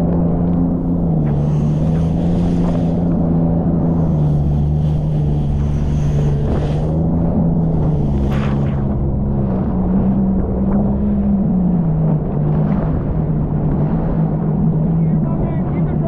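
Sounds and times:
jet ski engine running: 0.0s - 16.0s
hiss: 1.3s - 3.0s.

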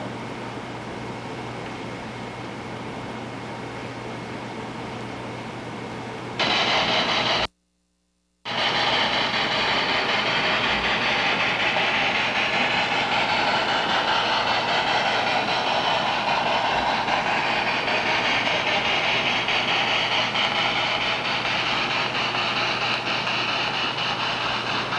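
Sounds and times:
model train rolling on track: 6.4s - 7.5s, 8.5s - 24.9s
steady hiss: 6.4s - 7.5s, 8.5s - 24.9s.

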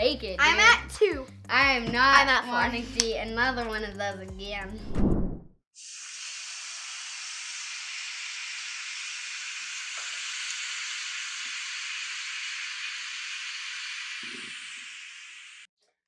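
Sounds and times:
food sizzling in frying pan: 5.8s - 15.7s.

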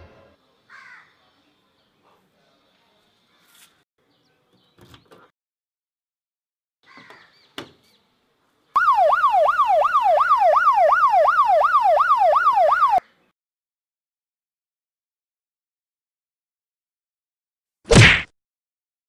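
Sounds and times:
electronic siren yelping: 8.8s - 13.0s.

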